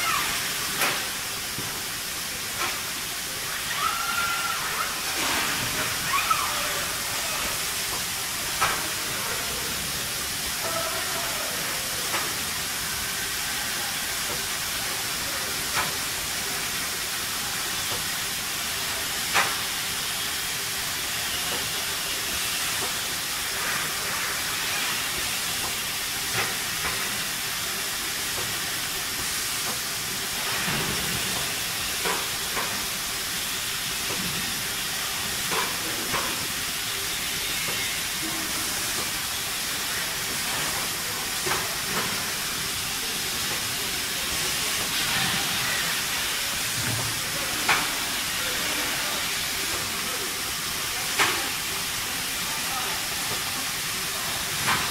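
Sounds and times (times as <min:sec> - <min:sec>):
steady machinery hiss: 0:00.0 - 0:54.9.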